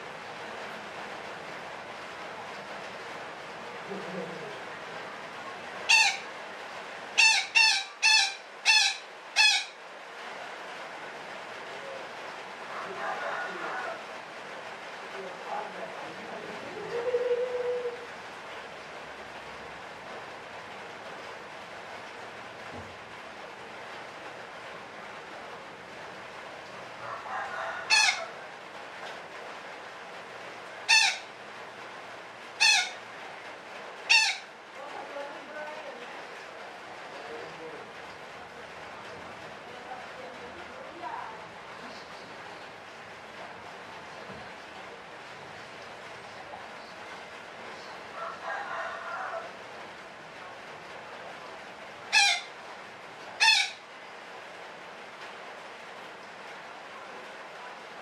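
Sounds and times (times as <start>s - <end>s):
parakeet screeching calls: 5.9s - 6.3s, 7.2s - 9.8s, 27.8s - 28.3s, 30.9s - 31.3s, 32.6s - 33.0s, 34.1s - 34.5s, 52.1s - 52.5s, 53.4s - 53.8s.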